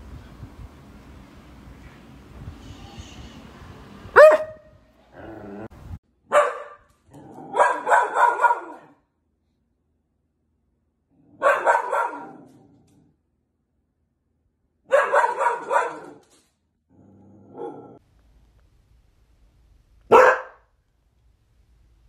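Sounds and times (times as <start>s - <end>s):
dog barking: 4.1s - 4.7s, 6.3s - 9.0s, 11.4s - 12.5s, 14.9s - 16.2s, 20.1s - 20.7s
dog yelping: 7.5s - 8.9s, 11.4s - 12.4s, 14.9s - 16.2s.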